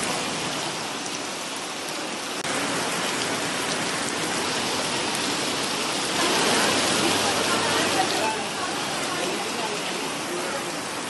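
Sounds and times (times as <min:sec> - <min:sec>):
heavy rain on water: 0:00.0 - 0:11.0.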